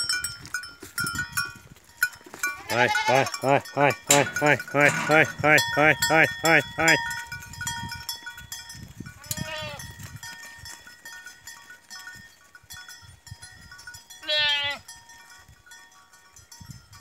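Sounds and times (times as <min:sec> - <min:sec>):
goats bleating: 0:02.4 - 0:07.1, 0:09.2 - 0:09.8, 0:14.2 - 0:14.8.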